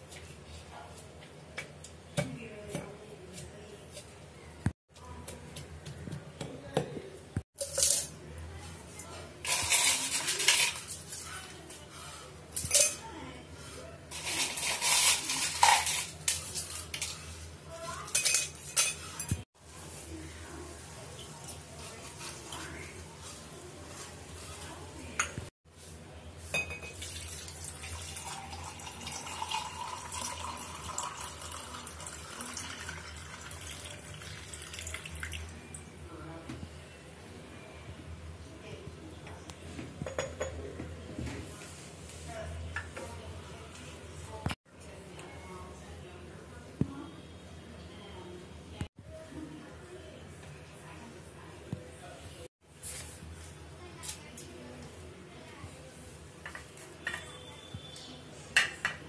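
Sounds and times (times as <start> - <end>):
liquid pouring into glass: 27.0 - 35.5.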